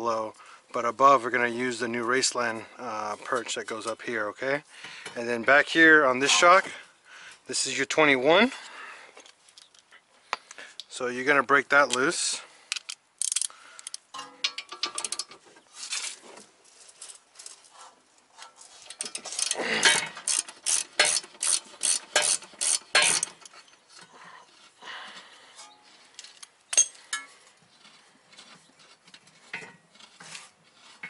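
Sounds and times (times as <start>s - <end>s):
hand ratchet clicking: 12.7s - 15.3s, 18.9s - 23.5s.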